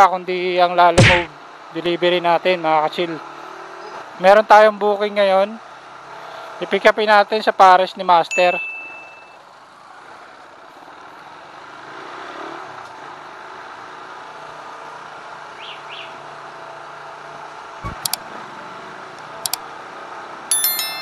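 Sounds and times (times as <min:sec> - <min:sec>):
road noise: 0:00.0 - 0:21.0
high-pitched ringing: 0:08.3 - 0:09.4, 0:20.5 - 0:21.0
sharp paired clicks: 0:17.8 - 0:18.2.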